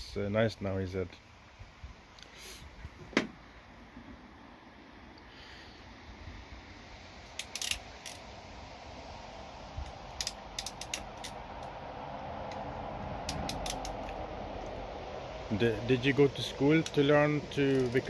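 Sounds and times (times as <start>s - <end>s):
faint background noise: 0.0s - 18.0s
crimping tool clicks: 10.2s - 11.4s, 13.2s - 14.2s.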